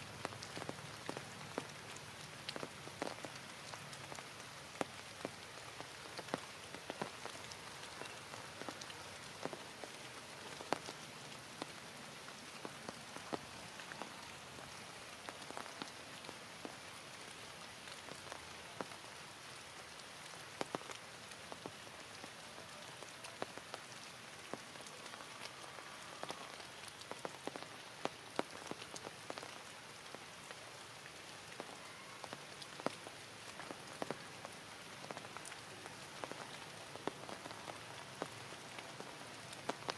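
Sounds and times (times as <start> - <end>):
heavy rain hissing: 0.0 - 39.9
raindrops ticking on surfaces: 0.0 - 39.9.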